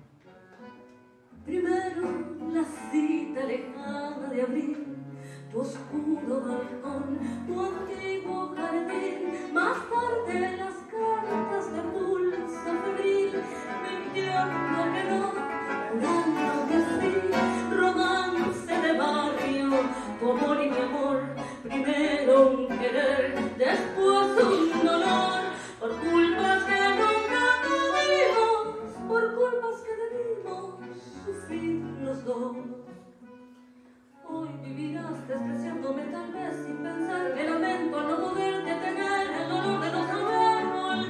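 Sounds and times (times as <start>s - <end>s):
classical guitar: 0.0s - 41.0s
woman singing: 1.4s - 33.2s, 34.2s - 41.0s
bandoneon: 5.9s - 29.3s.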